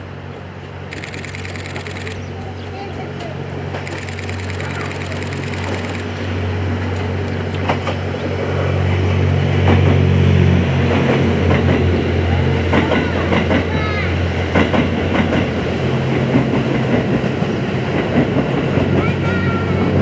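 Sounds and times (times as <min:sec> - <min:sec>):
diesel train engine hum: 0:00.0 - 0:20.0
train wheels clicking over rail joints: 0:00.9 - 0:02.2, 0:03.2 - 0:06.1, 0:14.5 - 0:19.4.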